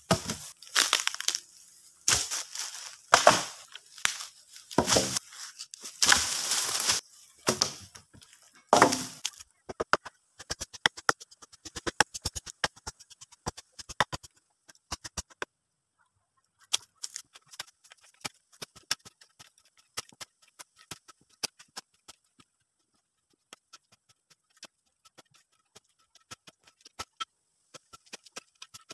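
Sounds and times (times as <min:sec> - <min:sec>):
hand tool digging dry soil: 0:00.0 - 0:09.5, 0:16.8 - 0:28.9
logs crashing onto pile: 0:03.1 - 0:03.8.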